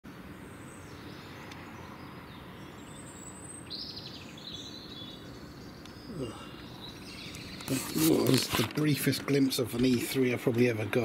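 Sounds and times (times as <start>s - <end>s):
high bird chirps: 0.5s - 8.2s.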